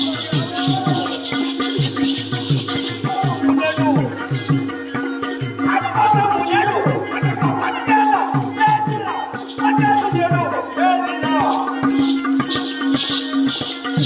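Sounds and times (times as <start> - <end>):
man singing: 0.0 - 1.6, 2.8 - 4.8, 5.6 - 12.3
hand drum beating: 0.0 - 14.0
metallic jingle: 0.0 - 14.0.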